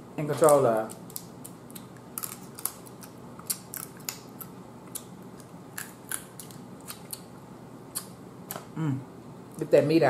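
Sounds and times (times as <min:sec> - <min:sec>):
crab shell cracking: 0:00.4 - 0:07.3.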